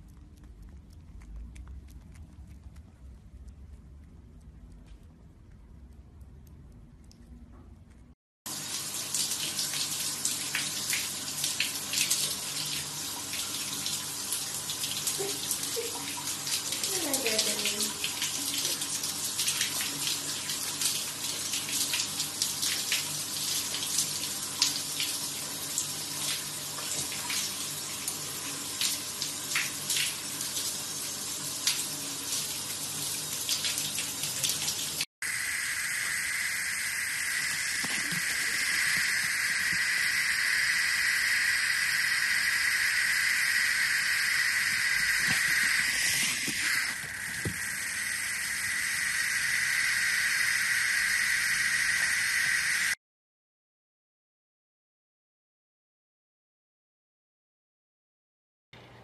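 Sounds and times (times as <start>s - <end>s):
tap water running: 8.5s - 53.0s
spraying water hiss: 35.2s - 53.0s.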